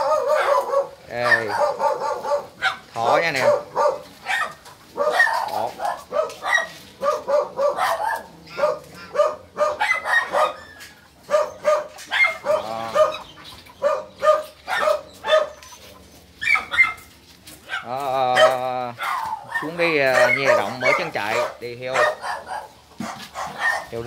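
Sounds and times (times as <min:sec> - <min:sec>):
dog barking: 0:00.0 - 0:24.0.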